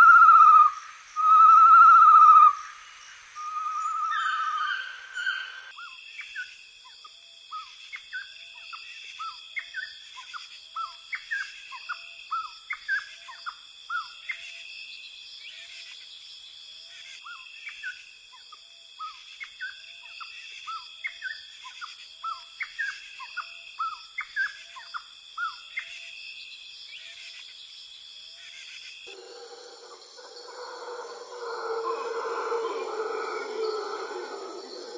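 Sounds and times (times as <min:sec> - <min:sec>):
birds chirping: 0:00.0 - 0:05.7, 0:29.1 - 0:34.9.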